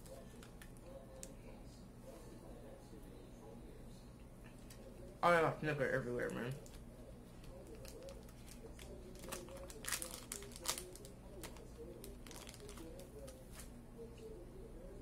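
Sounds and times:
plastic wrapper crinkling: 7.4 - 13.7.

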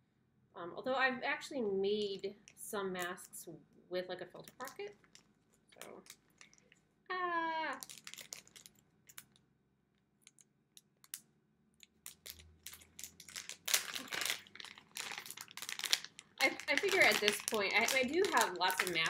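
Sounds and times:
plastic packaging crinkling: 4.4 - 6.8, 7.6 - 9.4, 11.8 - 19.0.

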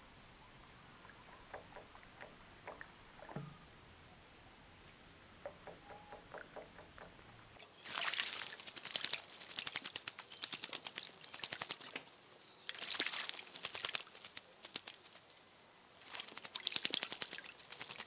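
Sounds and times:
bird splashing in birdbath: 7.6 - 15.3, 16.0 - 18.0.

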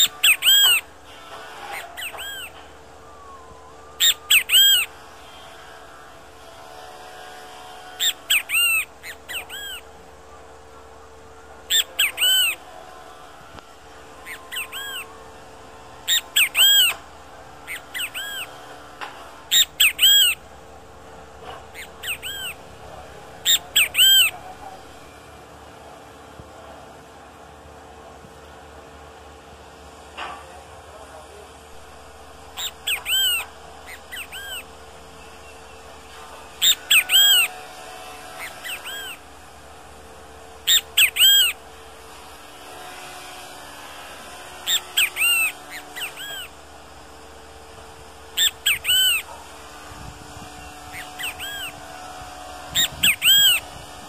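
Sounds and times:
bird calling loudly: 0.0 - 0.9, 1.5 - 5.6, 8.0 - 10.0, 11.6 - 12.8, 14.1 - 15.2, 16.0 - 17.0, 17.6 - 18.8, 19.5 - 20.5, 21.6 - 22.7, 23.4 - 24.6, 32.5 - 37.6, 38.2 - 39.3, 40.6 - 41.7, 44.6 - 46.6, 48.3 - 49.4, 50.4 - 52.0, 52.6 - 53.9.

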